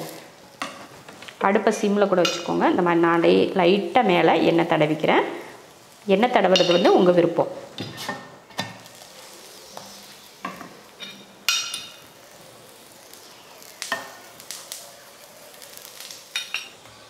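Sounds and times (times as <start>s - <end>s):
flatbread sizzling on a griddle: 0.0s - 17.0s
utensils clicking on a griddle: 13.0s - 17.0s.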